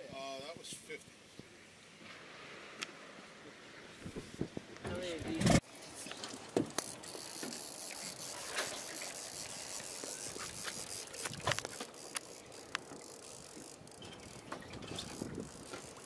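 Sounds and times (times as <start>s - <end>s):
fishing reel whirring: 5.8s - 16.0s.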